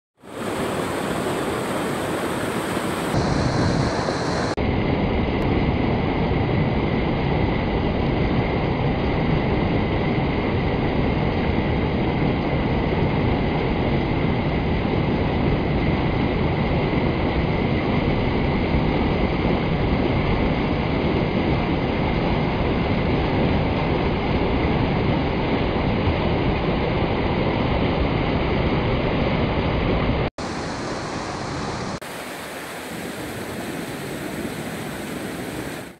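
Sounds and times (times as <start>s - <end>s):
water rushing over weir: 0.2s - 4.6s, 30.4s - 35.9s.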